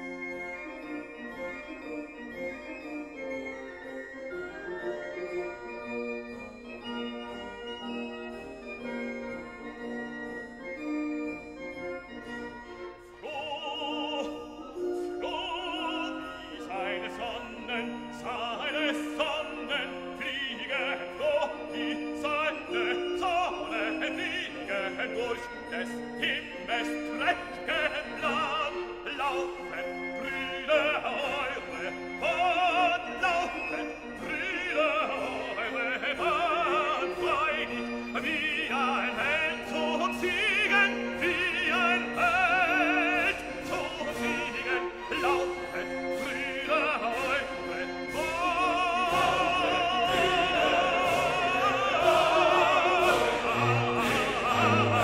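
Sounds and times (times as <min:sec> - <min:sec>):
sustained musical accompaniment: 0:00.0 - 0:55.0
operatic voice singing with vibrato: 0:13.2 - 0:55.0.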